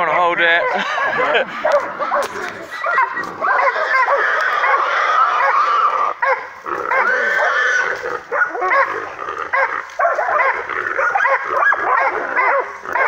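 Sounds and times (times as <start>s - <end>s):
dogs barking and yelping: 0.0s - 13.0s
hog squealing: 0.1s - 9.8s.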